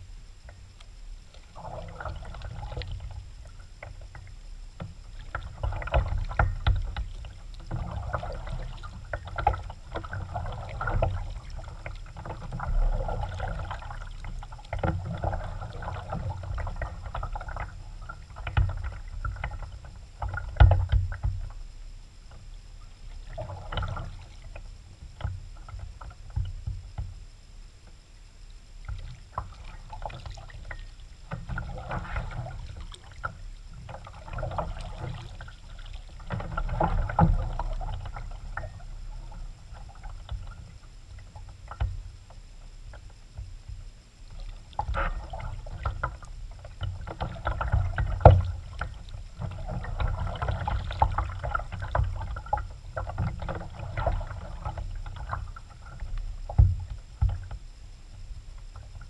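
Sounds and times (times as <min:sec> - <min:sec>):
paddle splashing in water: 0:01.4 - 0:03.6, 0:05.1 - 0:21.2, 0:28.8 - 0:41.9, 0:44.3 - 0:57.5
knocks against kayak hull: 0:56.5 - 0:57.6.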